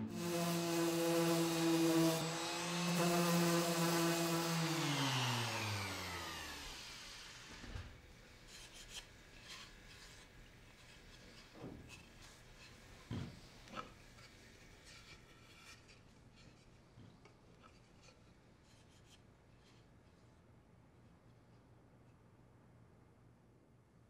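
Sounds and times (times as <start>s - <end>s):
orbital sander running: 0.0s - 7.9s.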